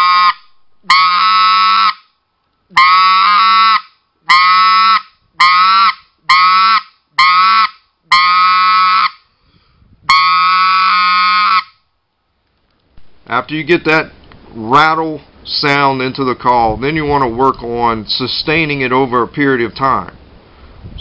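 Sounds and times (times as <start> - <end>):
raspy goose call notes: 0.0 - 2.1, 2.7 - 9.3, 10.1 - 11.8.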